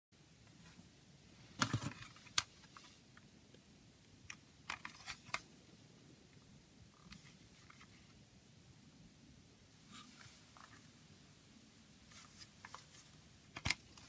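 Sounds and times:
plastic case clicks: 13.6s - 14.0s.

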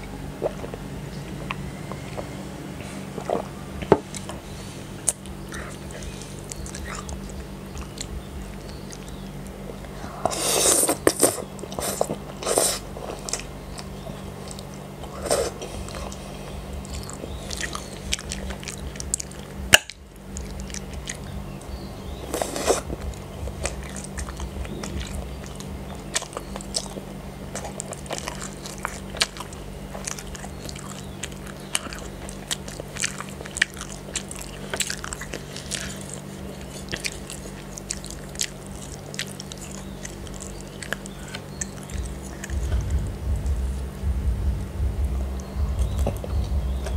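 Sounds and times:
close chewing with mouth smacks: 0.0s - 44.0s, 45.3s - 46.9s
slurping noodles: 10.1s - 13.4s, 22.3s - 23.0s.

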